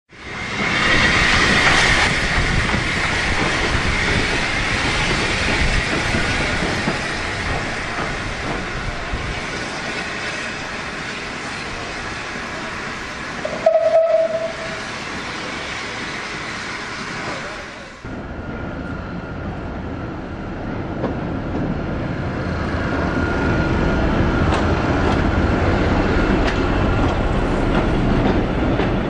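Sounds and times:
steam locomotive running: 0:00.2 - 0:19.8, 0:21.0 - 0:29.0
steam whistle note: 0:13.4 - 0:14.8.

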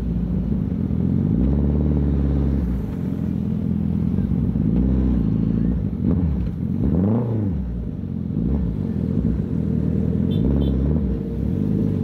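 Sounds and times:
motorcycle engine revving: 0:04.1 - 0:12.0.

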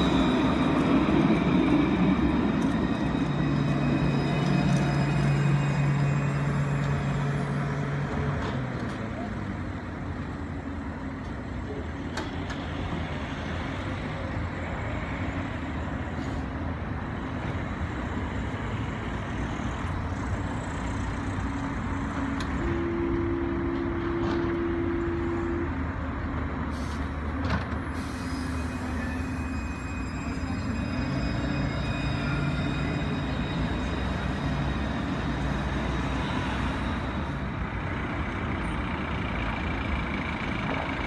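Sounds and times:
street noise: 0:00.0 - 0:41.0
tram equipment humming: 0:00.0 - 0:41.0.

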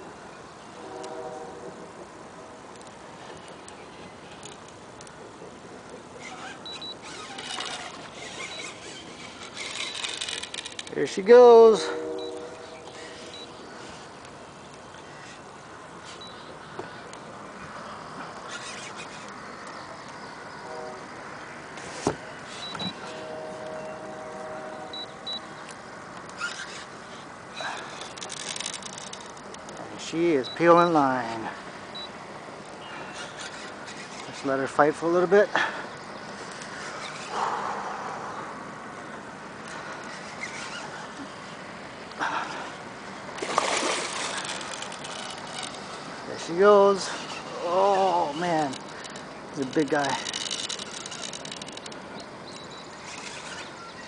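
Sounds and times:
wind: 0:00.0 - 0:54.0
fishing reel clicking and rasping: 0:02.8 - 0:05.2, 0:06.1 - 0:11.9, 0:12.8 - 0:14.4, 0:18.4 - 0:19.8, 0:26.2 - 0:31.5, 0:32.6 - 0:35.4, 0:36.4 - 0:37.5, 0:39.6 - 0:41.2, 0:43.3 - 0:54.0
thin squeal: 0:06.2 - 0:14.1, 0:18.5 - 0:19.3, 0:21.8 - 0:24.2, 0:26.4 - 0:29.3, 0:32.8 - 0:35.0, 0:36.7 - 0:37.4, 0:40.0 - 0:41.2, 0:44.1 - 0:54.0.

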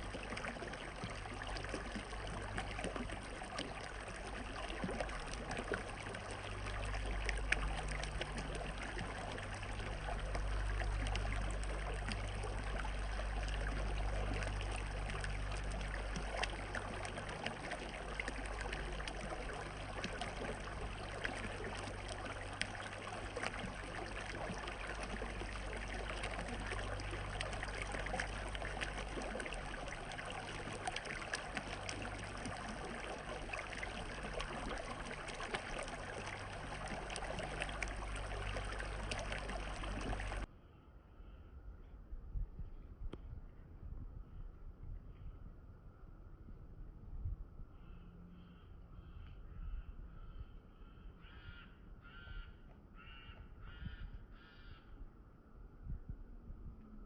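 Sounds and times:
small splashes: 0:00.0 - 0:40.5
water running and trickling: 0:00.0 - 0:40.5
low rumble: 0:55.0 - 0:57.0.

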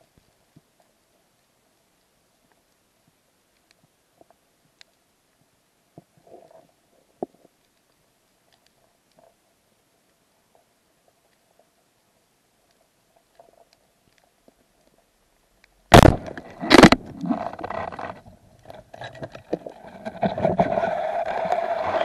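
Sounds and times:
speargun firing underwater: 0:15.9 - 0:17.2
irregular scraping and knocking: 0:16.2 - 0:22.0.

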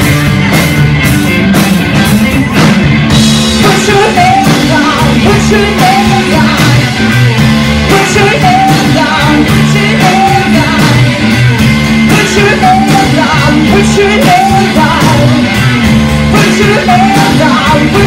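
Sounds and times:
live rock band: 0:00.0 - 0:18.0
woman singing: 0:03.6 - 0:07.0, 0:07.9 - 0:11.4, 0:12.1 - 0:15.5.

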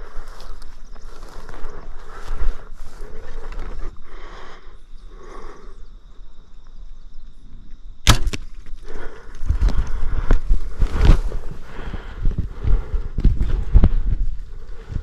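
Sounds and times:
rustling through grass: 0:00.0 - 0:04.5, 0:08.7 - 0:15.0.

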